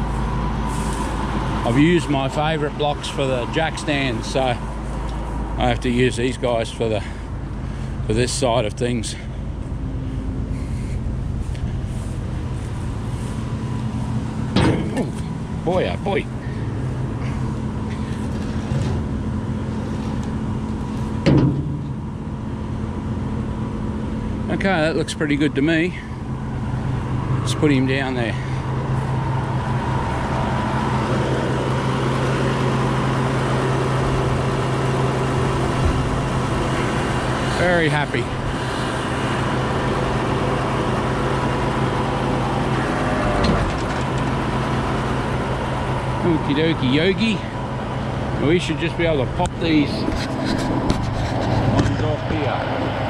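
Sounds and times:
truck engine running: 0.0s - 53.0s.

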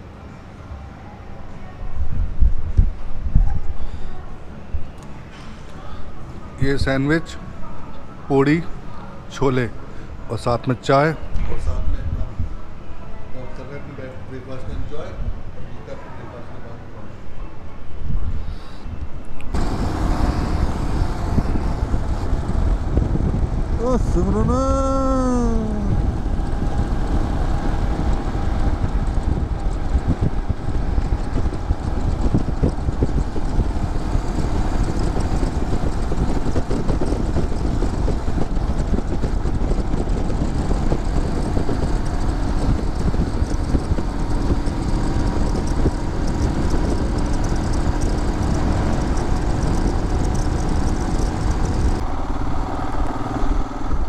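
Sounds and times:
road noise: 0.0s - 54.0s
wind: 0.0s - 54.0s
motorcycle engine: 19.5s - 54.0s.

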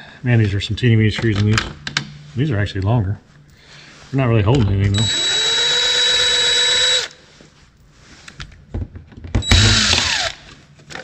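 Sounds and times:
cordless drill running: 4.9s - 7.2s, 9.4s - 10.4s.

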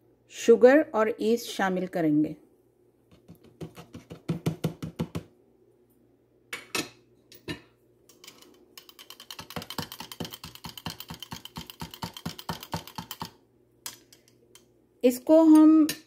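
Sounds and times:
spoon stirring in plastic jug: 3.1s - 4.8s, 8.1s - 13.4s.

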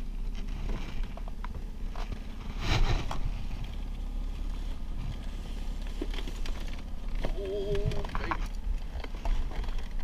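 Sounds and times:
boat motor rumbling: 3.2s - 10.0s.

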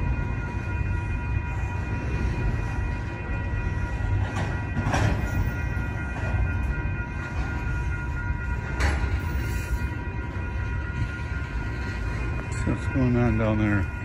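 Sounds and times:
high-pitched whine: 0.0s - 14.0s
train wheels rumbling on rail: 0.0s - 14.0s.

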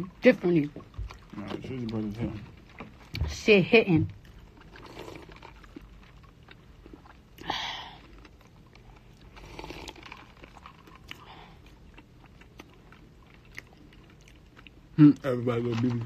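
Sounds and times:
swallowing: 4.2s - 15.0s.

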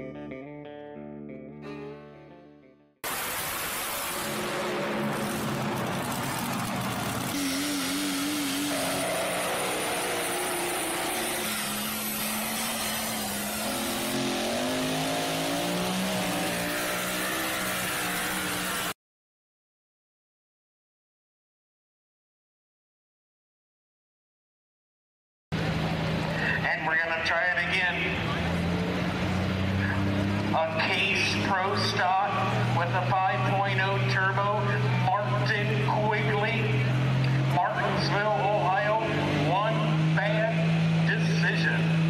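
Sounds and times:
tractor engine running: 3.0s - 16.1s
outdoor noise: 3.0s - 19.0s, 25.5s - 42.0s
truck and tractor engines revving: 3.0s - 19.0s, 25.6s - 42.0s.

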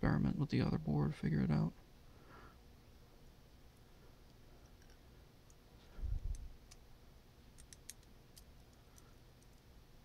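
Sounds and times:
small parts clicking: 4.3s - 5.6s, 7.6s - 9.7s.

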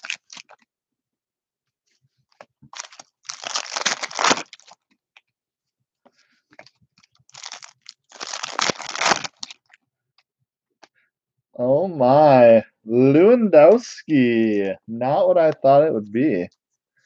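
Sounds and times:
foil wrapper crinkling: 0.0s - 0.6s, 2.7s - 4.8s, 7.0s - 9.8s.

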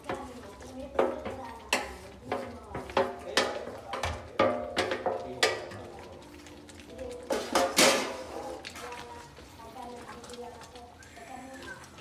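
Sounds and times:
spatula clanking on metal: 0.0s - 6.0s, 7.3s - 8.4s.

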